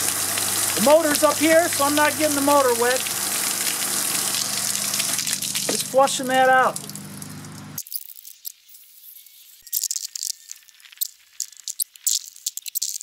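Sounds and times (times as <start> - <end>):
hands scrubbing in soapy water: 0.0 - 7.6
hose spraying: 0.0 - 7.8.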